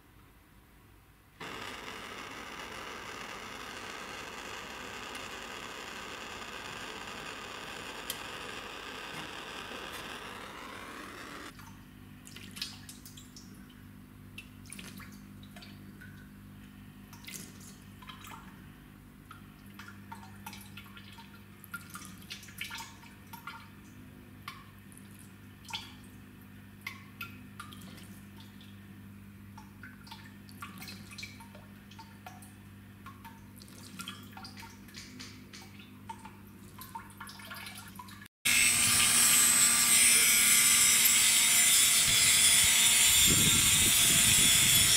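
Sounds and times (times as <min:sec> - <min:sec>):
water trickling and dripping: 0:11.6 - 0:18.6, 0:19.2 - 0:26.1, 0:29.5 - 0:38.3.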